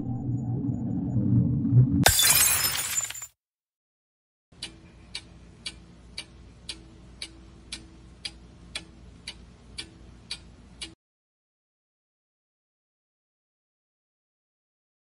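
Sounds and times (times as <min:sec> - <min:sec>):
clock ticking: 0:04.6 - 0:11.0.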